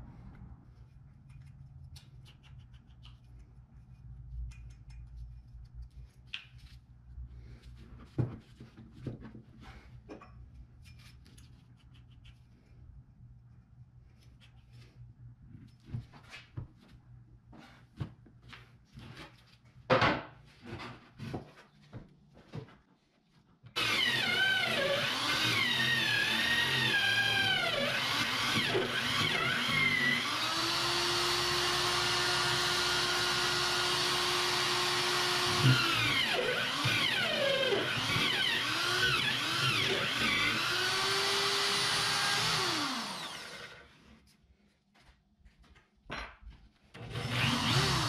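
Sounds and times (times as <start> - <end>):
electric drill boring into wood: 23.8 - 43.8, 47.0 - 48.0.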